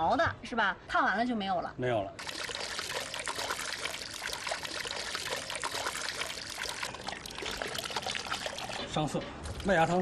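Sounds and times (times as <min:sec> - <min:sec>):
water pouring and splashing: 0:02.2 - 0:10.0.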